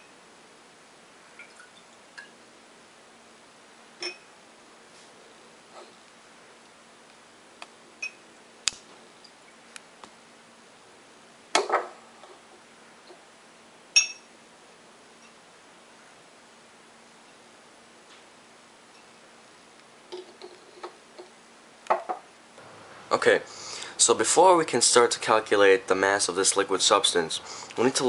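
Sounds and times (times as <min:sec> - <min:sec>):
ringing glass clink: 0:04.0 - 0:04.3, 0:14.0 - 0:14.3
glassware clinking and knocking: 0:14.0 - 0:14.3.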